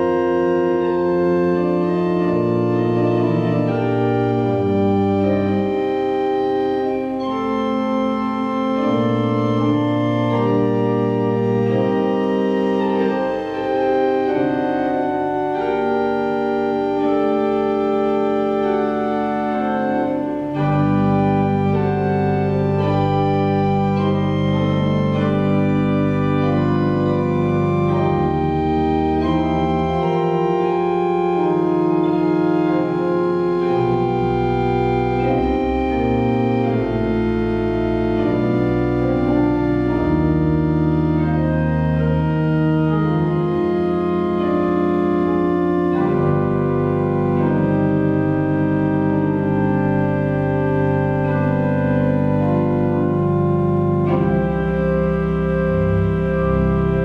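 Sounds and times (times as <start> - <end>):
organ playing held chords: 0.0 - 57.0.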